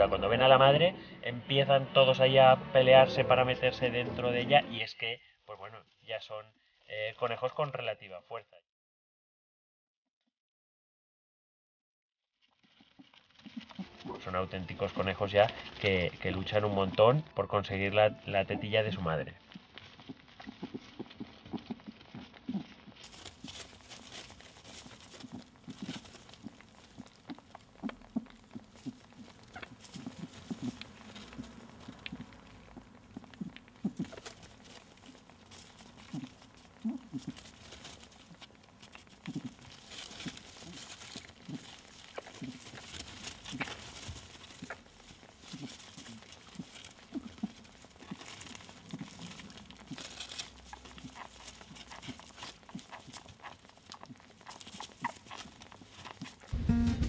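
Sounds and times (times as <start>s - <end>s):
rustling fur and straw: 12.4s - 57.0s.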